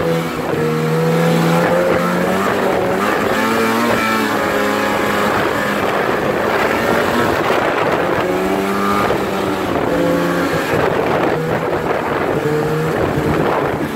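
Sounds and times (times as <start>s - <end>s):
snowmobile engine: 0.0s - 13.9s
wind and track noise: 0.0s - 13.9s.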